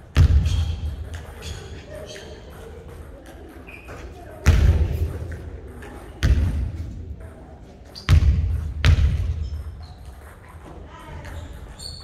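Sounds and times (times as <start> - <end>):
basketball bouncing on wooden court: 0.1 - 1.6, 4.4 - 5.2, 6.2 - 6.8, 8.0 - 10.2.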